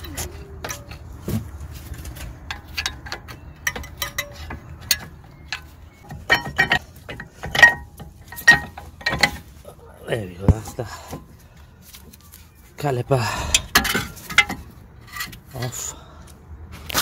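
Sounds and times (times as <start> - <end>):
metal clicks and clinks: 2.5 - 9.4.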